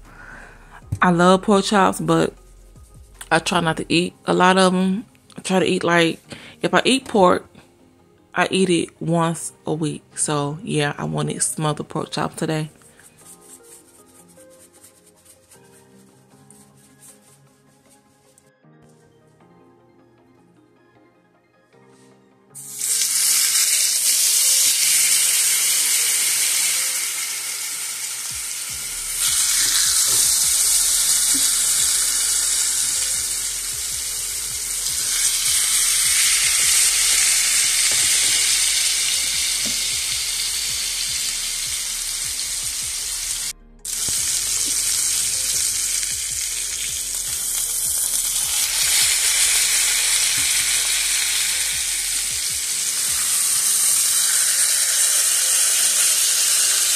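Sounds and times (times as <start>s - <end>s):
pork chops sizzling in oil: 22.6s - 56.9s.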